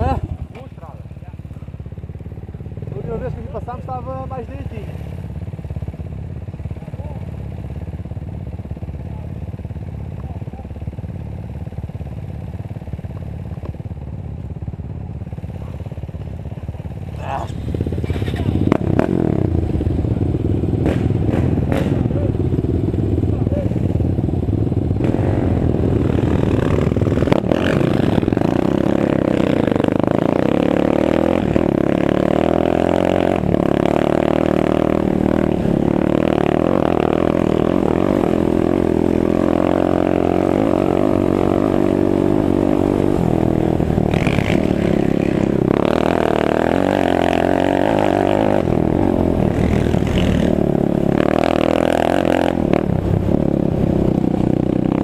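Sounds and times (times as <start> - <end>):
quad engine revving: 17.1 - 55.0.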